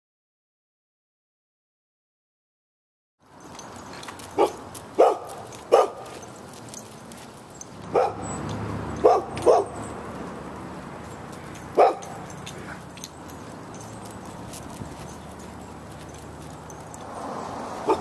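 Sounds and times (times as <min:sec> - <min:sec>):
dog barking: 0:04.4 - 0:06.2, 0:07.9 - 0:08.4, 0:09.0 - 0:09.8, 0:11.7 - 0:12.8, 0:17.8 - 0:18.0.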